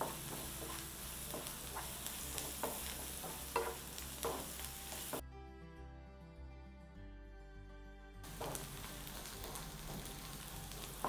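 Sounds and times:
vegetables sizzling in oil: 0.0s - 5.2s, 8.2s - 11.0s
wooden spatula scraping a pan: 0.0s - 5.2s, 8.3s - 11.0s.

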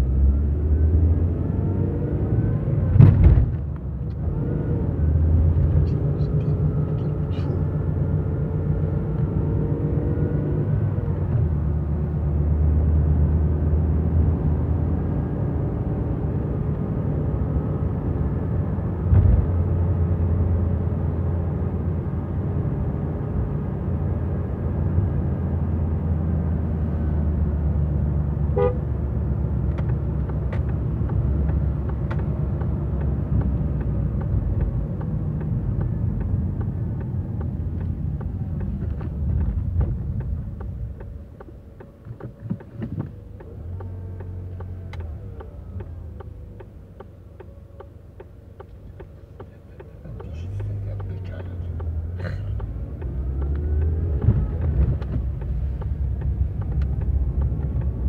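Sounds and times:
car engine and tyre hum: 0.0s - 58.0s
thump: 2.9s - 3.6s.

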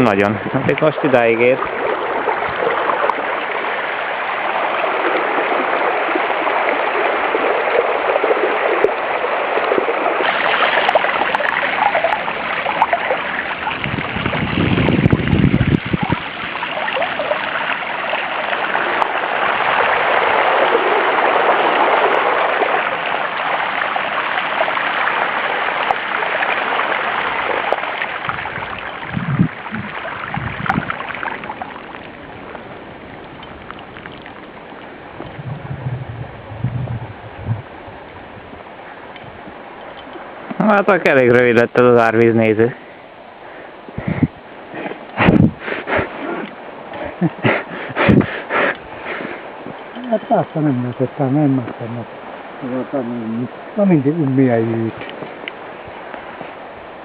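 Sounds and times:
bicycle wheel splashing through water: 0.8s - 35.5s.

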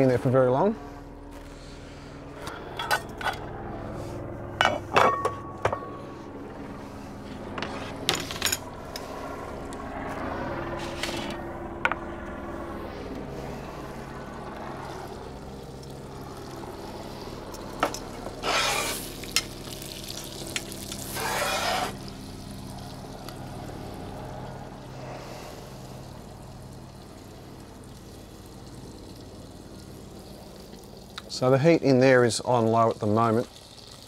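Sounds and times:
gas burner humming: 0.0s - 34.0s
butter sizzling in a pan: 17.5s - 24.0s, 26.0s - 31.2s, 32.6s - 34.0s.

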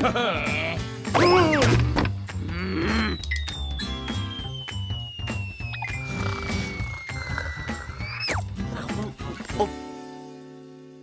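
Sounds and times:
cartoon background music: 0.0s - 11.0s
long falling whistle: 2.9s - 7.4s.

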